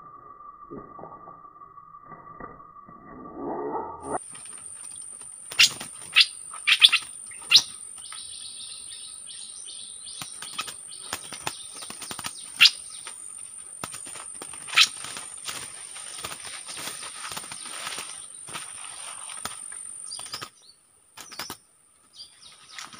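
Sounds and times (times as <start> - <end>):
high insect drone: 4.1 - 20.4
bird giving sharp calls: 5.5 - 9.1, 10.1 - 13.0, 14.6 - 15.2.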